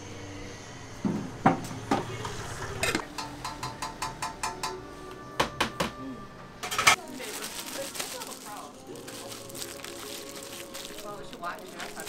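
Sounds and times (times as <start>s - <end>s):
metal utensils tapping on griddle: 2.9s - 4.8s.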